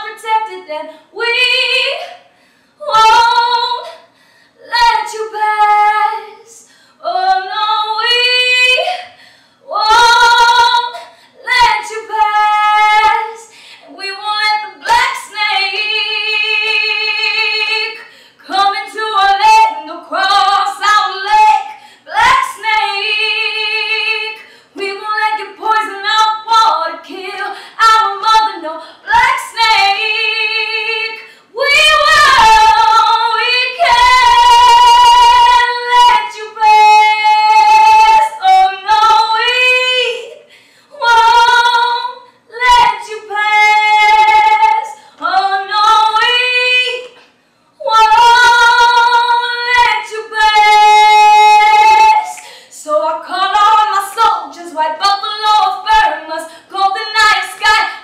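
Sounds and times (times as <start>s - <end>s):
woman singing unaccompanied: 0.0s - 2.2s, 2.8s - 40.4s, 41.0s - 47.2s, 47.8s - 58.0s.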